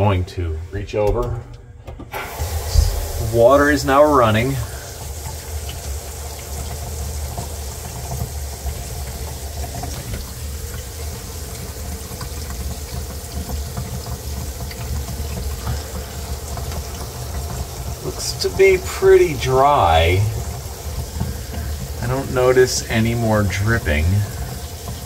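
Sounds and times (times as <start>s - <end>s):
water rushing down a sink drain: 2.2s - 25.0s.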